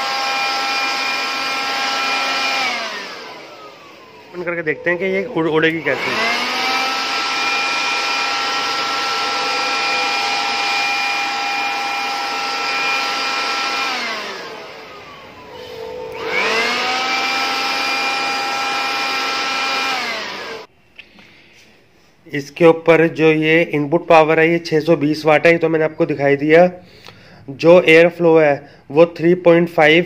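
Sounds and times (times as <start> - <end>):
electric air blower whine: 0.0 - 20.7.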